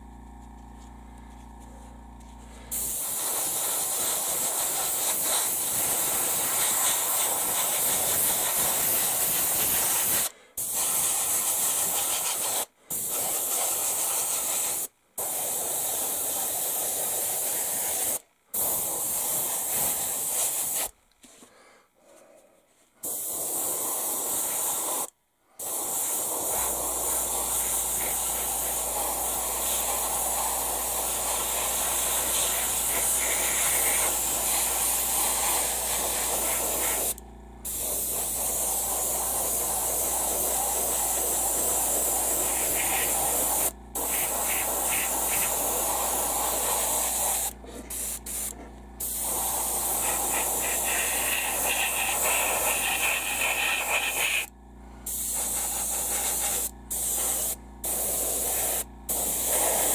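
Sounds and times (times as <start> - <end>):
airbrush spraying hiss: 2.7 - 21.0, 23.0 - 54.5, 55.1 - 59.9.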